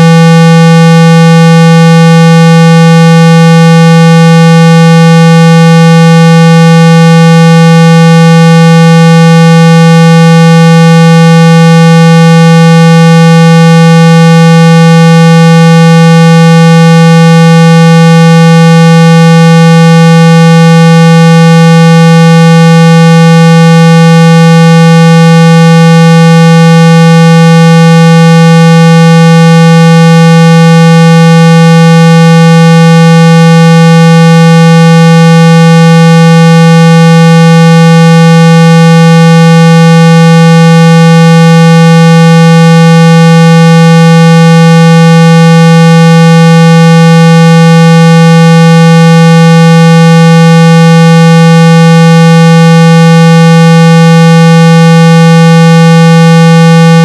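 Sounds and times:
loud low electronic test tone: 0.0s - 33.5s.

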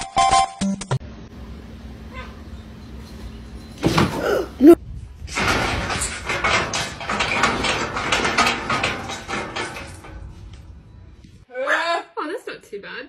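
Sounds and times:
metal railing rattling: 2.1s - 11.4s.

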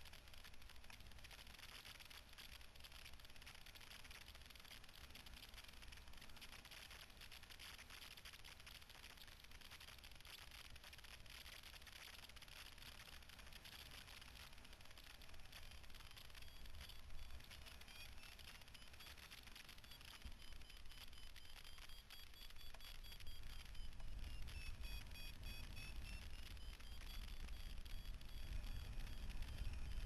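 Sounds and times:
camera recording hiss: 0.0s - 30.0s.

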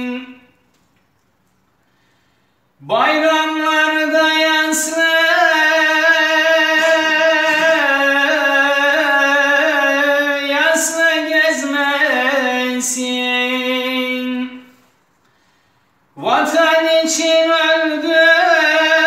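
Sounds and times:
man singing unaccompanied: 0.0s - 0.6s, 2.8s - 14.7s, 16.2s - 19.0s.

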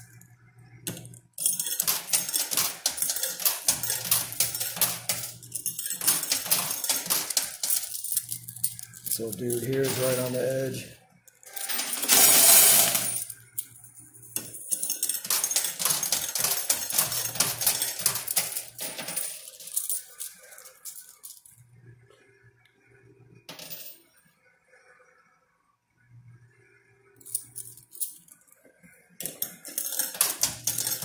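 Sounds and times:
coins clattering in coin pusher: 0.9s - 21.6s, 23.5s - 24.1s, 27.2s - 28.4s, 29.2s - 31.0s.

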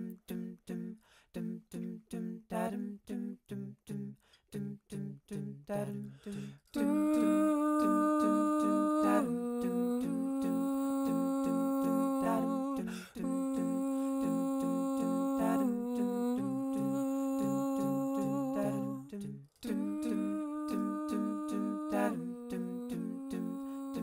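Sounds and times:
hummed vocal chords: 0.0s - 24.0s
sung vocal bass line: 6.8s - 24.0s.

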